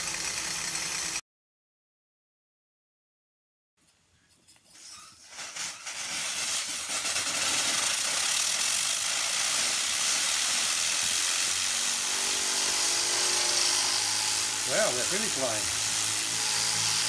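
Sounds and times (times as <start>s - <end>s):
steam hissing from nozzles: 4.6s - 17.0s.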